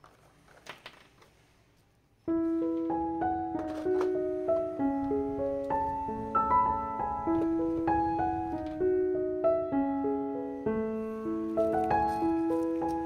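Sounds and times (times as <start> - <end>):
gentle piano music: 2.2 - 13.0.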